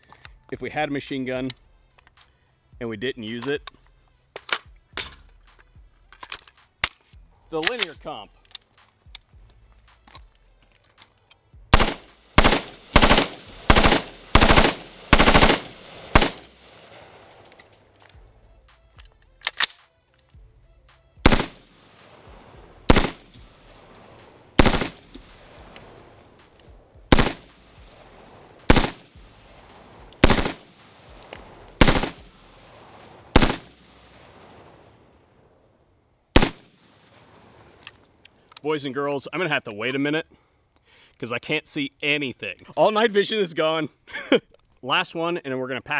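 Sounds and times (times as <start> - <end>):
rifle shots: 11.7 - 17.6, 21.2 - 34.6, 36.4 - 37.8.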